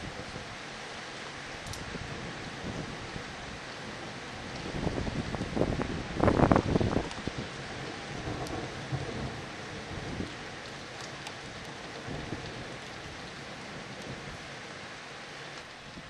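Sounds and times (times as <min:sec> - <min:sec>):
steady rain: 0:00.0 - 0:16.0
raindrops ticking on glass: 0:01.6 - 0:01.9, 0:04.4 - 0:14.4
thunder rumbling: 0:01.6 - 0:14.8.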